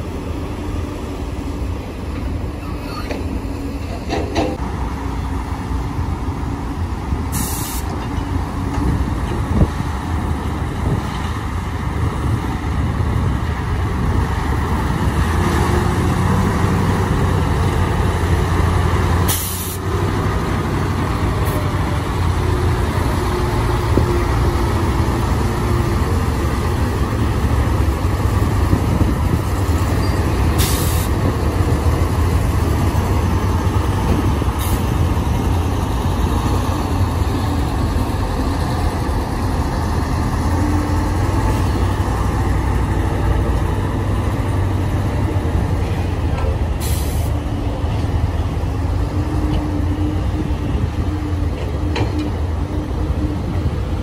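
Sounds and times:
diesel truck engines humming: 0:00.0 - 0:54.0
air brake hissing: 0:07.3 - 0:08.0, 0:19.3 - 0:19.9, 0:30.6 - 0:31.2, 0:34.6 - 0:34.9, 0:46.8 - 0:47.4.

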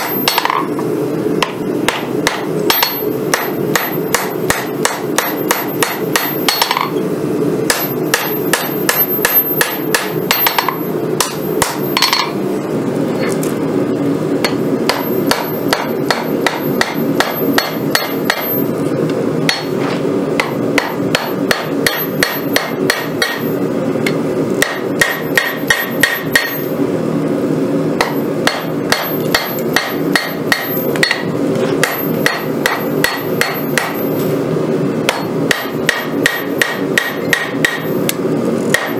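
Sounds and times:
hammer ringing on anvil: 0:00.0 - 0:00.7, 0:01.4 - 0:07.0, 0:07.7 - 0:12.4, 0:14.4 - 0:18.7, 0:20.4 - 0:23.6, 0:24.6 - 0:26.7, 0:28.0 - 0:34.2, 0:35.1 - 0:38.0.

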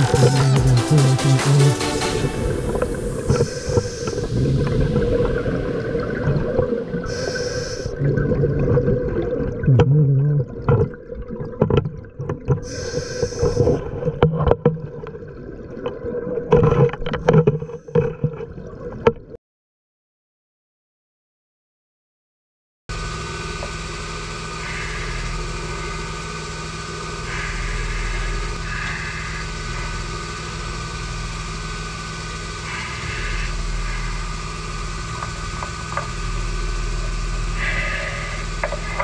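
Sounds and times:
diver breathing through regulator: 0:00.0 - 0:08.0, 0:12.6 - 0:14.0, 0:24.6 - 0:26.2, 0:27.2 - 0:30.4, 0:32.6 - 0:35.3, 0:37.2 - 0:39.0
underwater bubbling gurgles: 0:02.2 - 0:19.4.

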